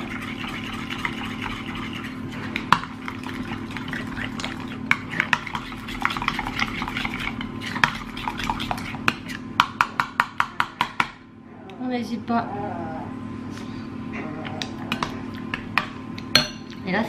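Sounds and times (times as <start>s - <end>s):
spoon stirring thick mixture: 0.0s - 11.1s.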